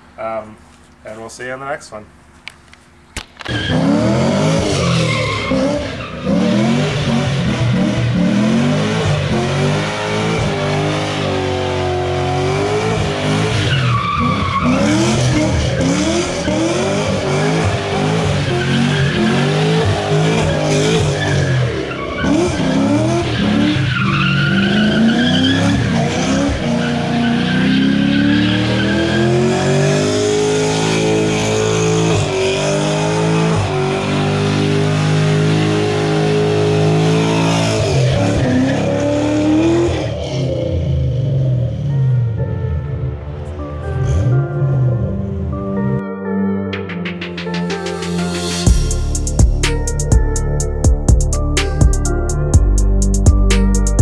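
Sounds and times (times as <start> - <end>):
car engine revving: 3.4 - 42.0.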